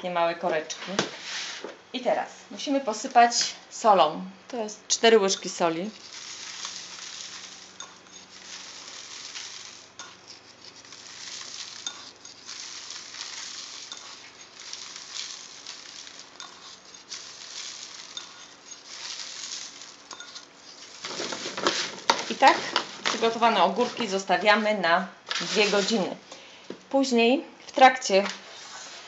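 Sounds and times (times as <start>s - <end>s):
salt grains pattering: 5.0s - 24.7s, 25.3s - 26.1s.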